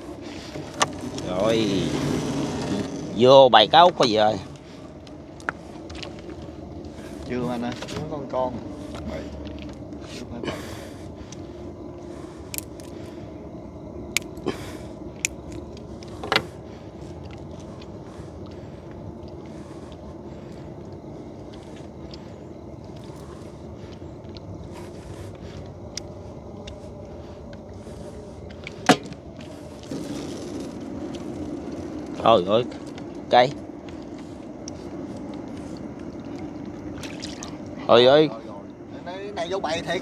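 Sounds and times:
small boat engine running: 0.1 - 3.9.

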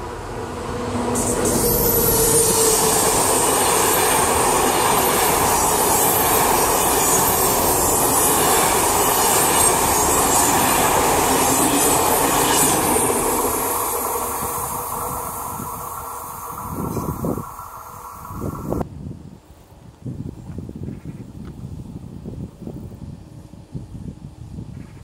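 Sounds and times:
train wheels rolling on rail: 0.0 - 18.9.

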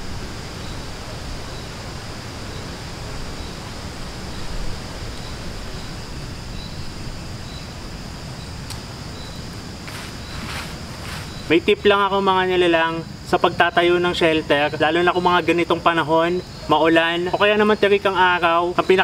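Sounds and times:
high insect drone: 0.0 - 19.0
faint chirp: 0.5 - 12.2.

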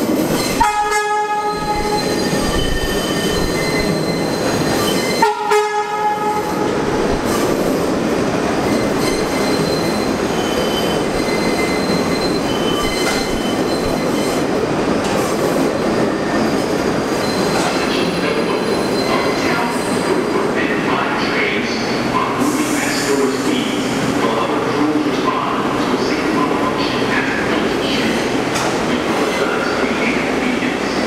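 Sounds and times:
train wheels rumbling on rails: 0.0 - 31.0
wheel squeals: 1.7 - 5.2, 8.7 - 14.4.

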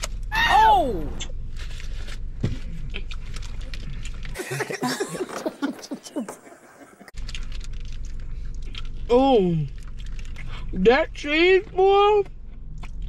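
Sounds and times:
people eating: 2.5 - 10.8
sauce packet tearing: 7.2 - 9.1, 9.7 - 10.6.

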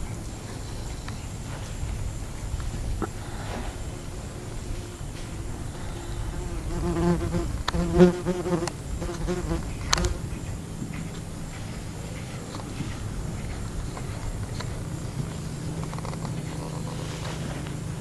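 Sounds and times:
flying insect buzzing: 3.1 - 10.2.

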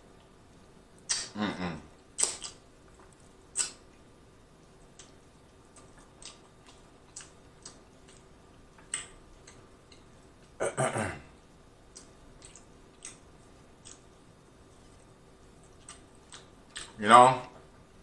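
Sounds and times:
wet mouth clicks and smacks: 1.0 - 1.3, 2.2 - 3.8.

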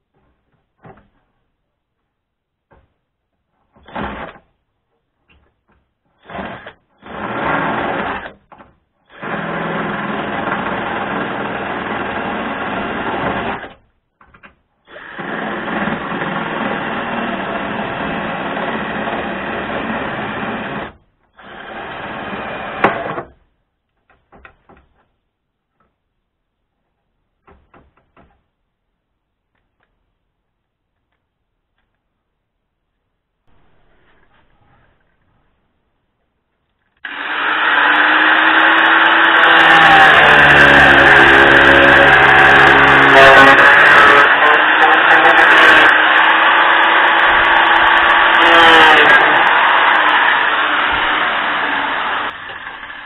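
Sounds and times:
cordless drill drilling into steel: 37.0 - 53.0.

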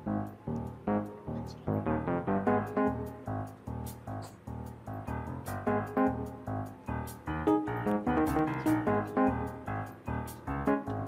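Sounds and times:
bouncy background music: 0.0 - 11.0.

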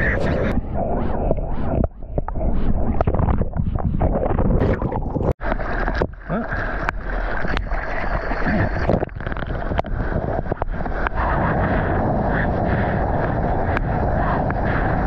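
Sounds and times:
wind noise on microphone: 0.0 - 15.0
water rushing and splashing: 4.6 - 15.0.

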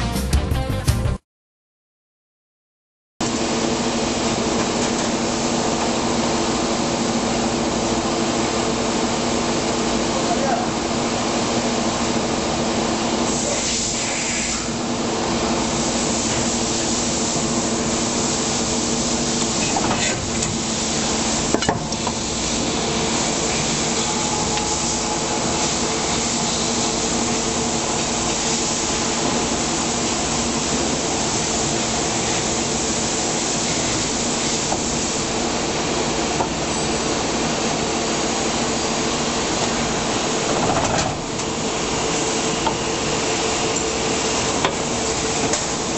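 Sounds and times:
machine pump hum and hiss: 3.2 - 45.9.

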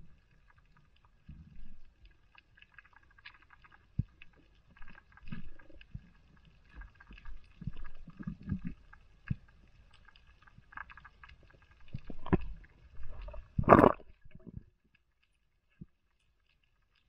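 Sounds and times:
faint crackling ticks: 0.0 - 13.4, 14.0 - 17.0
underwater low thuds: 13.1 - 14.7.

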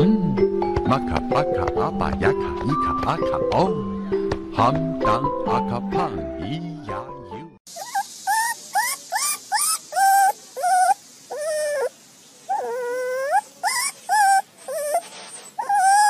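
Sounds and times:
puppy whimpering: 7.7 - 11.9, 12.5 - 16.0.

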